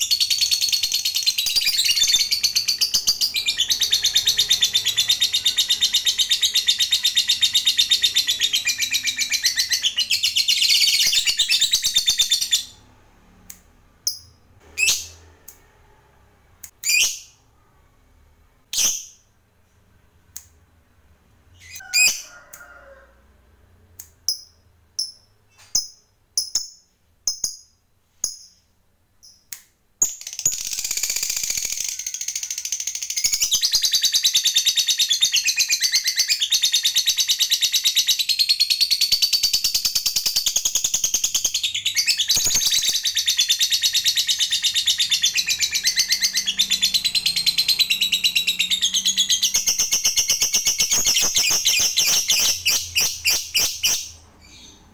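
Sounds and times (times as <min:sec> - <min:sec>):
bird sharp chirps: 0:39.0 - 0:54.9
bird rapid chattering trill: 0:42.4 - 0:54.2.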